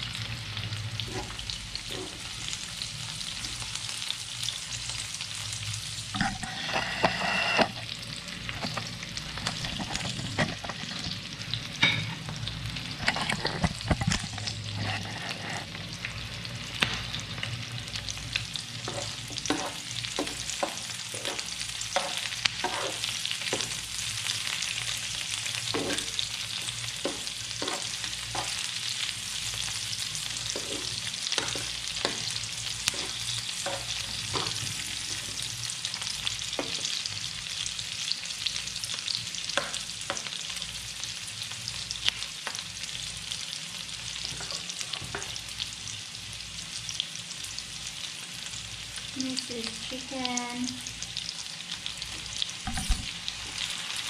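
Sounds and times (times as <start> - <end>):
vegetables sizzling in oil: 0.0 - 54.0.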